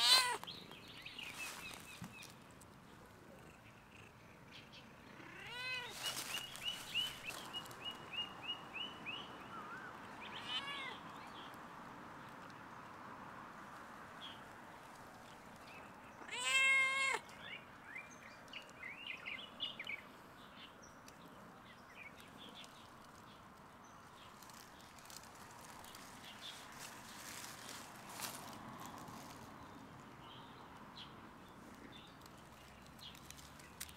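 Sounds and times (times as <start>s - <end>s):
cat meowing loudly: 0.0s - 0.4s, 5.2s - 6.1s, 10.3s - 11.0s, 16.2s - 17.2s.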